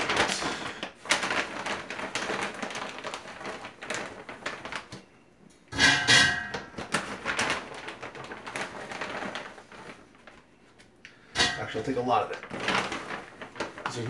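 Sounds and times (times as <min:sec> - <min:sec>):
plastic bag crinkling: 0:00.0 - 0:05.2, 0:06.3 - 0:14.0
food clattering into metal basket: 0:05.7 - 0:09.4, 0:11.2 - 0:14.0.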